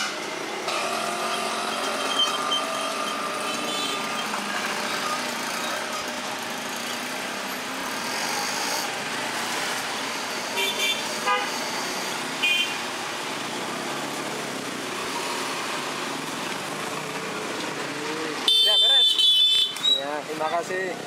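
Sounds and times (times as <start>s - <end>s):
street traffic noise: 0.0s - 21.0s
vehicle horn beeps: 2.1s - 4.3s, 10.6s - 11.6s, 18.5s - 19.8s.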